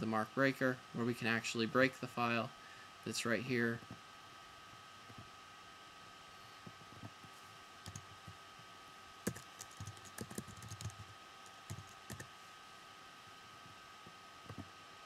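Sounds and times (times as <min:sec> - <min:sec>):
faint steady hum: 0:00.0 - 0:15.0
keyboard typing: 0:07.8 - 0:08.1, 0:09.2 - 0:12.3.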